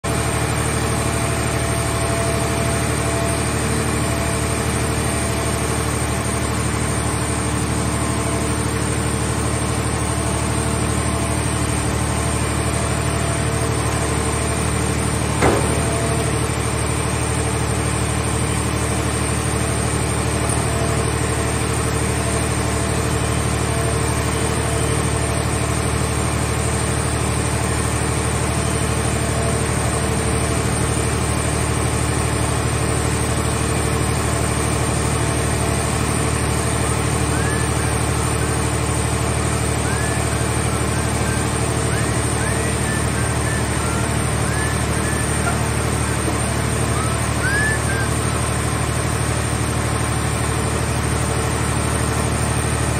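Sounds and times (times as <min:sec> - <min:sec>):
gasoline engine running: 0:00.0 - 0:52.9.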